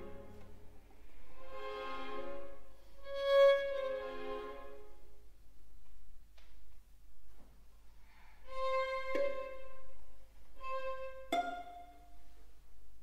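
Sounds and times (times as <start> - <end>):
solo violin: 0.0 - 5.2, 8.4 - 12.3
string orchestra: 0.0 - 5.4, 8.3 - 13.0.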